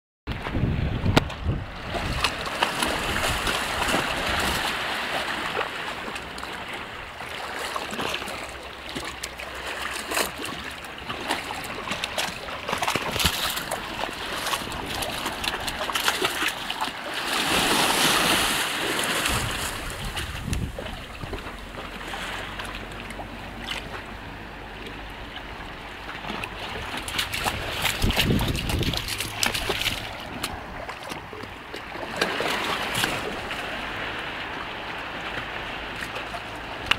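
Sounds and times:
water washing: 7.7 - 34.6
dog splashing through water: 26.2 - 31.2.

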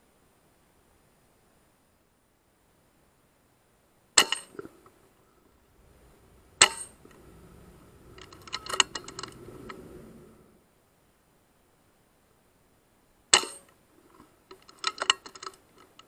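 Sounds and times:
light clicks and rattles: 5.8 - 10.4, 14.0 - 16.0
air rifle shots: 6.6 - 7.0.

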